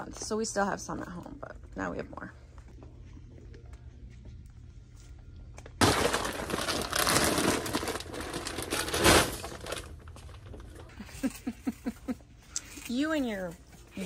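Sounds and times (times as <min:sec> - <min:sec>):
plastic bag crinkling: 0:05.8 - 0:10.9.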